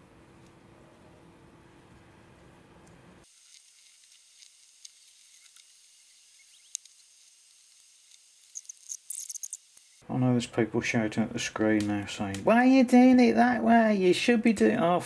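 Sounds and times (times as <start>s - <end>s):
small clicks: 2.8s - 9.9s.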